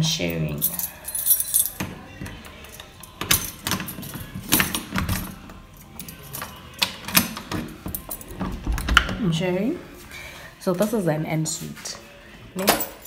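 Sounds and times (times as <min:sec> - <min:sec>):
rattling jingling handling noise: 0:00.4 - 0:08.9.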